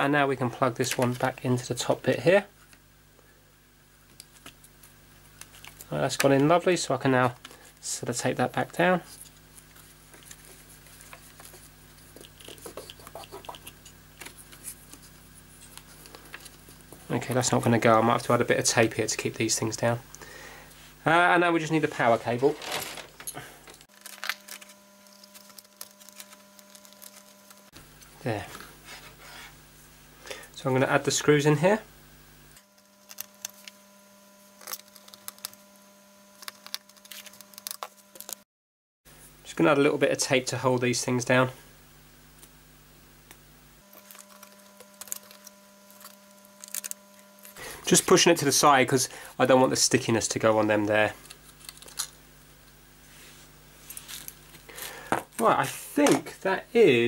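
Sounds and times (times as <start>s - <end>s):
steady low hum: 0.0s - 38.4s, 39.1s - 57.0s
fingers handling ribbon cable: 9.1s - 17.1s, 43.9s - 47.6s, 51.2s - 52.1s.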